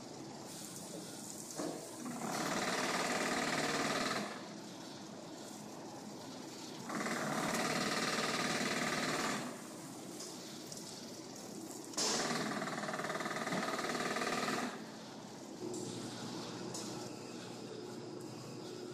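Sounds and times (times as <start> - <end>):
rough machine noise bursts: 2.0 - 4.5, 6.8 - 9.6, 12.0 - 14.9.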